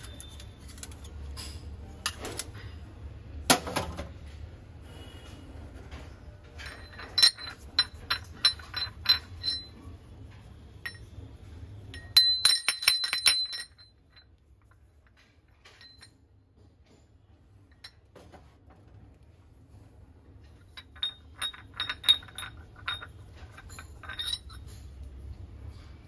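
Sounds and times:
brass utensils clinking: 0:06.6 - 0:09.8, 0:20.7 - 0:25.0.

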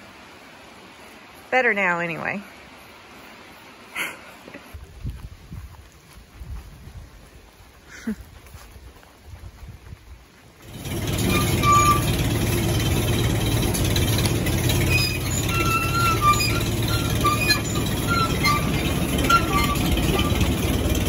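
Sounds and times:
grinder-mixer rumbling: 0:10.6 - 0:21.0.

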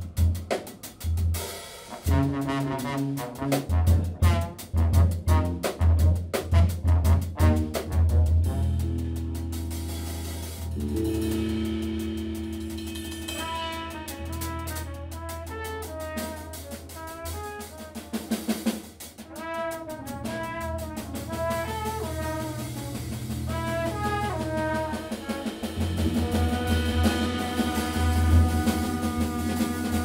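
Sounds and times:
bass: 0:00.0 - 0:30.0
drum kit: 0:00.0 - 0:30.0
trumpet phrases: 0:01.9 - 0:08.8, 0:10.9 - 0:18.6, 0:19.2 - 0:30.0.

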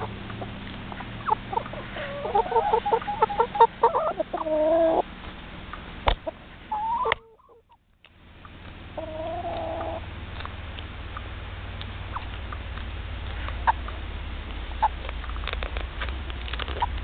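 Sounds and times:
hen drawn-out call: 0:00.0 - 0:05.1, 0:06.7 - 0:07.7, 0:09.0 - 0:10.1
hen clucking: 0:00.0 - 0:07.8, 0:08.4 - 0:10.1, 0:12.0 - 0:14.0, 0:14.7 - 0:15.4
steady low rumble: 0:00.0 - 0:17.0.

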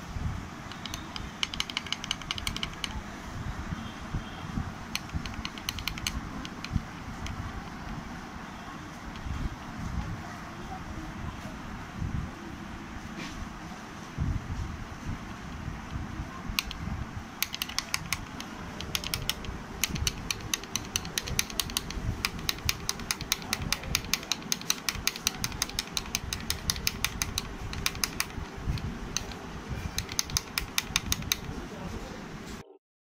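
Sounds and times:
steady hum: 0:00.0 - 0:32.8
sewing machine clicking: 0:00.7 - 0:03.0, 0:05.0 - 0:07.3, 0:17.4 - 0:29.4, 0:30.0 - 0:31.6.

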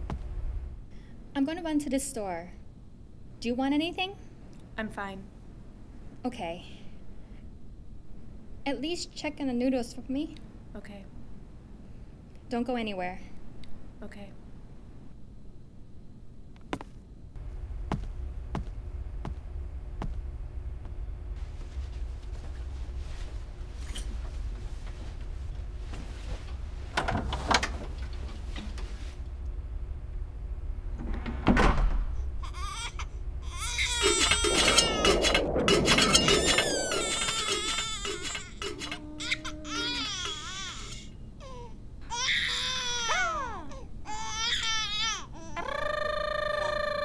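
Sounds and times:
low hum: 0:00.0 - 0:01.4, 0:17.1 - 0:42.1
baby crying: 0:32.4 - 0:35.0, 0:36.4 - 0:47.0.

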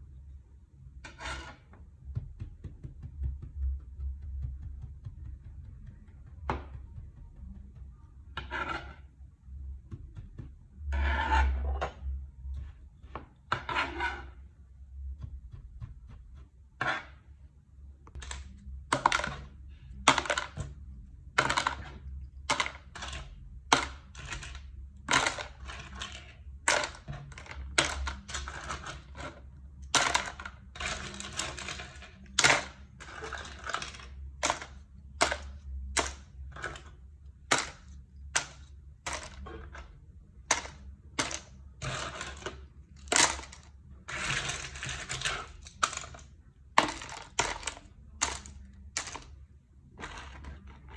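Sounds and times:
plastic moulds clattering into tub: 0:29.9 - 0:49.4.

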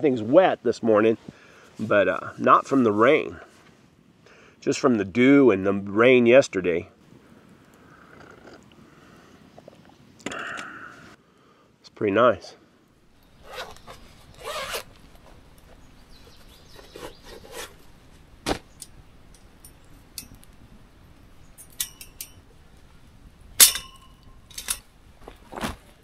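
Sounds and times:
metal camp gear clinking: 0:18.8 - 0:20.5, 0:21.5 - 0:22.5, 0:23.6 - 0:25.4.

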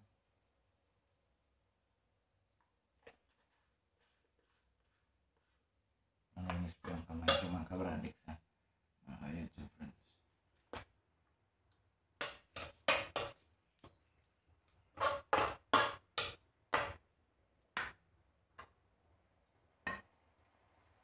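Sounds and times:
hands mixing food in metal bowl: 0:06.4 - 0:07.8, 0:12.2 - 0:14.0, 0:14.6 - 0:17.0.

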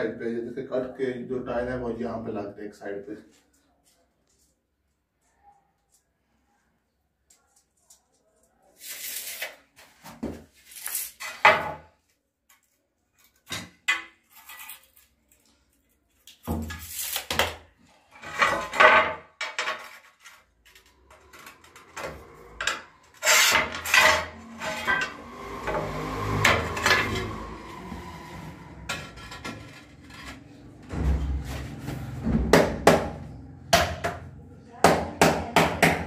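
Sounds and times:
tiles scraping and clinking: 0:07.6 - 0:11.9, 0:12.5 - 0:27.4, 0:28.9 - 0:30.6.

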